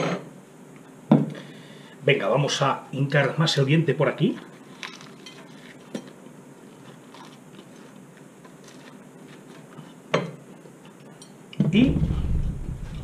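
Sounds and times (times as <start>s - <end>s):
person chewing a sandwich: 4.5s - 10.1s.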